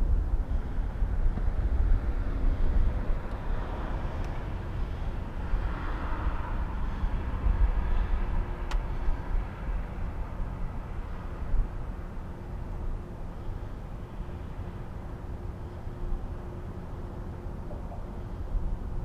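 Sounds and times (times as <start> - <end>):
wind on microphone: 0.0 - 13.7
distant traffic: 0.0 - 19.0.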